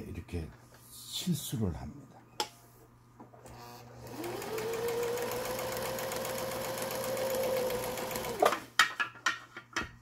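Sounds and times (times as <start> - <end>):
electric sewing machine stitching: 3.5 - 8.7.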